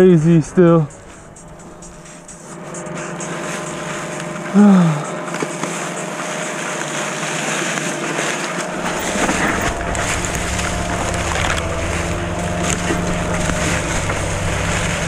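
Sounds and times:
tyres rolling over dry leaves: 0:01.0 - 0:15.0
bike rattles: 0:07.8 - 0:15.0
wind buffeting microphone: 0:08.6 - 0:15.0.

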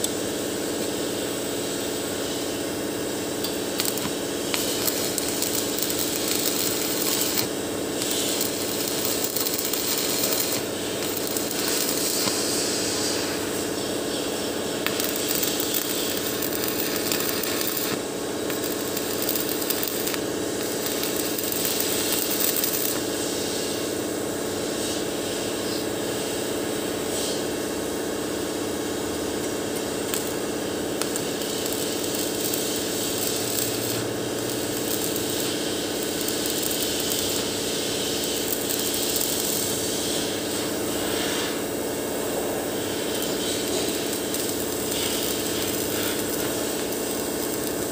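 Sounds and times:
steady hum: 0:00.0 - 0:24.1, 0:27.7 - 0:47.9
welding arc crackling and hissing: 0:00.0 - 0:47.9.

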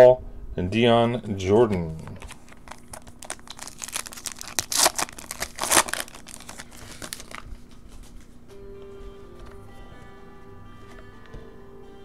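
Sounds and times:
foil wrapper tearing and crinkling: 0:02.2 - 0:07.6.

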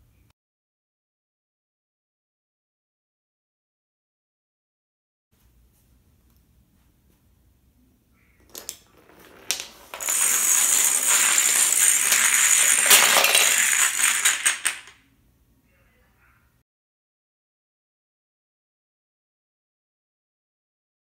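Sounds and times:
dominoes clattering: 0:08.4 - 0:15.0.

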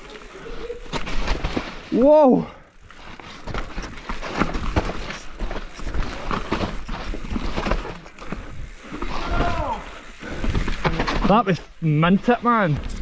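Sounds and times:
mountain bike rattling on rough trail: 0:00.0 - 0:13.0.

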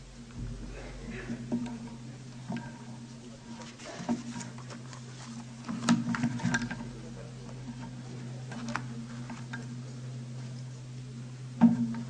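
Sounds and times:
steady low hum: 0:00.0 - 0:12.0
paper rustling: 0:03.6 - 0:06.6.

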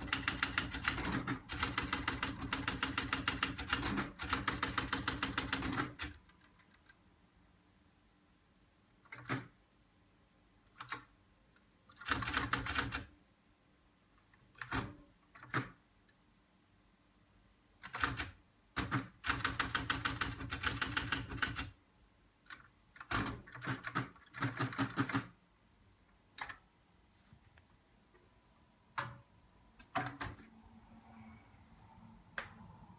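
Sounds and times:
teleprinter clattering: 0:00.0 - 0:06.8.

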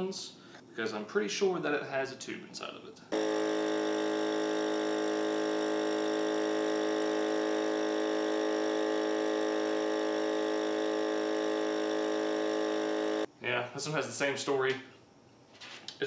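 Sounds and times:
electric air pump running: 0:03.1 - 0:13.3.

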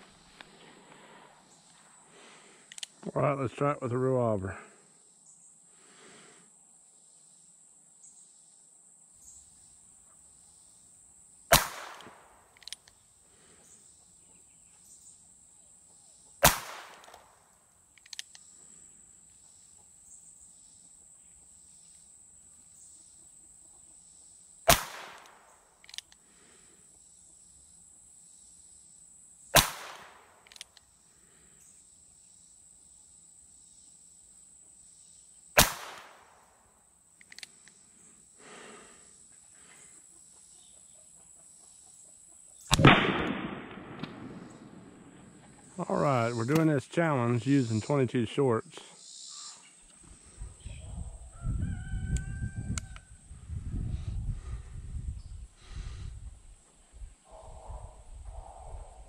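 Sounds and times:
faint click: 0:02.7 - 0:02.9, 0:37.2 - 0:37.8
high insect buzz: 0:04.8 - 0:42.8.

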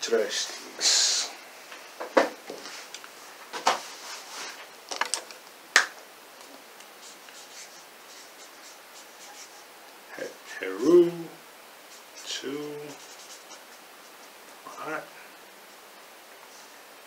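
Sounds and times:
marker scratching on paper: 0:07.0 - 0:09.8, 0:11.8 - 0:15.2.

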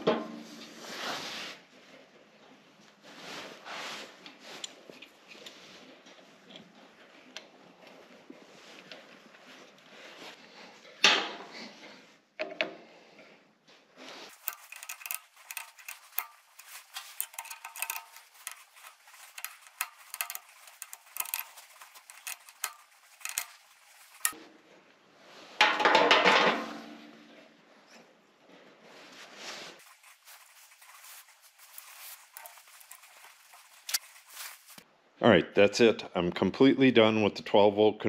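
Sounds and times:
metal tools clinking: 0:14.3 - 0:24.4, 0:29.8 - 0:34.8
ringing metallic clatter: 0:14.3 - 0:24.4.

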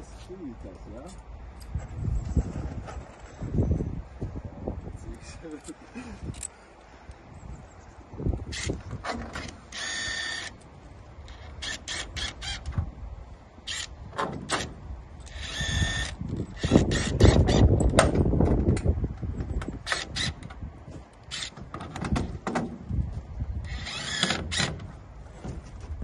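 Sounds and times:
cordless drill running: 0:09.7 - 0:10.5, 0:15.3 - 0:17.6, 0:23.7 - 0:24.7.

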